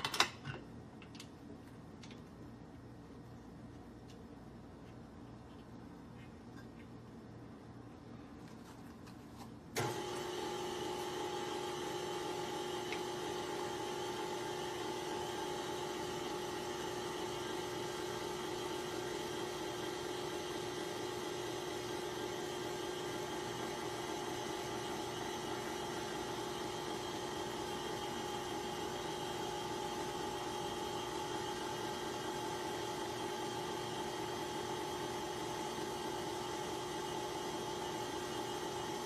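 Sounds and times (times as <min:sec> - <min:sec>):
stand mixer motor whining: 0:09.8 - 0:39.0.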